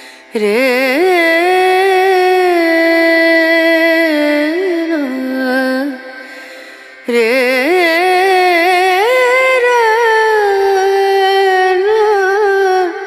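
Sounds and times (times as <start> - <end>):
indian classical melody: 0.0 - 13.0.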